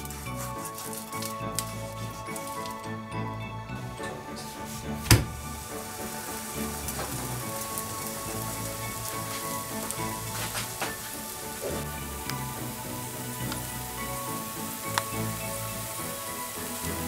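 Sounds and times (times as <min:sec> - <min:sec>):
soft background music: 0:00.0 - 0:17.0
dough sizzling in hot fat: 0:05.4 - 0:17.0.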